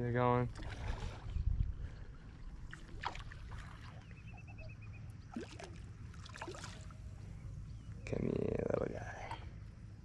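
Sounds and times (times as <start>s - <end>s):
water splashing and lapping: 0.5s - 4.2s, 5.3s - 7.2s.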